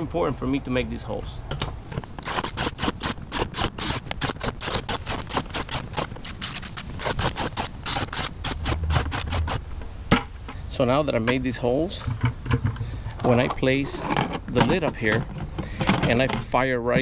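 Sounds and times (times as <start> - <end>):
drill boring through plastic: 6.2 - 9.6.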